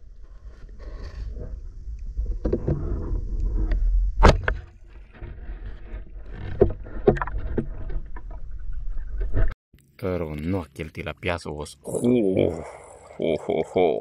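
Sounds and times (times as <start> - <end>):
water splashing and sloshing: 0.0 - 9.6.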